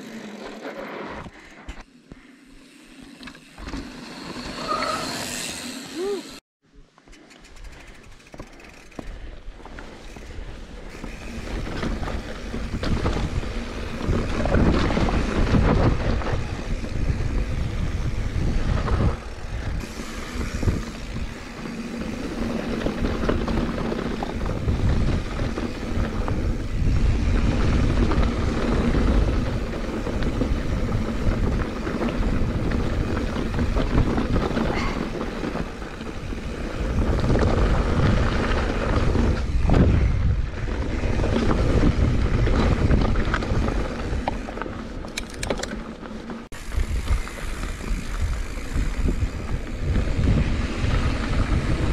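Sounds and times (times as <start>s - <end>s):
tyres rolling on dirt trail: 0.0s - 6.4s, 7.0s - 51.9s
wind buffeting microphone: 10.5s - 45.5s, 46.5s - 51.9s.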